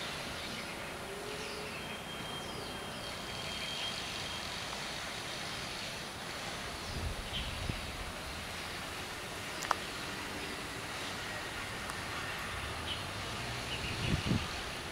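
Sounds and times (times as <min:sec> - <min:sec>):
outdoor background noise: 0:00.0 - 0:14.9
faint high chirps: 0:01.3 - 0:04.6.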